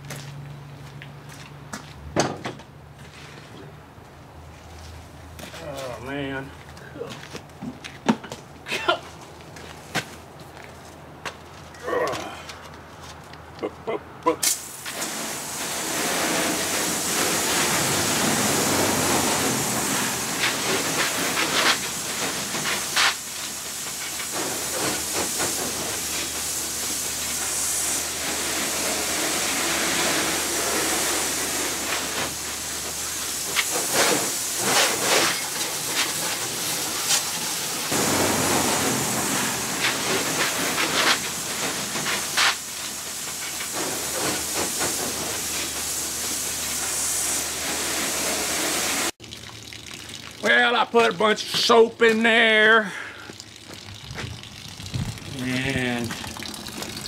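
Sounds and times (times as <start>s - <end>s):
hose water spraying into metal hull: 14.4s - 57.0s.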